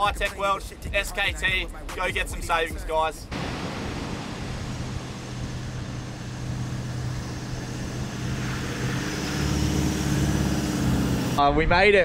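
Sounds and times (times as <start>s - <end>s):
vehicle engine running: 3.3s - 11.4s.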